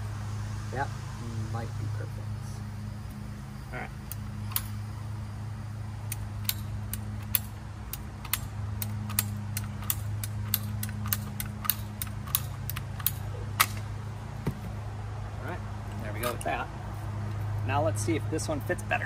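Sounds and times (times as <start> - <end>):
low hum: 0.0 - 17.7
sharp clicks of pipe cutting: 4.0 - 4.8, 6.0 - 13.9.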